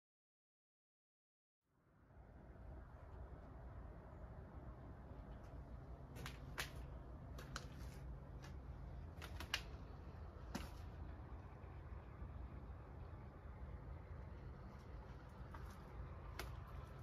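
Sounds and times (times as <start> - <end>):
low background rumble: 1.7 - 17.0.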